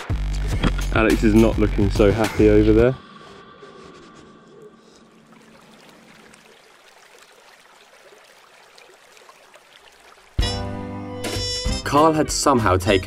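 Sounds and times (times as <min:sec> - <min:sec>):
river water flowing: 0:04.8 - 0:11.3.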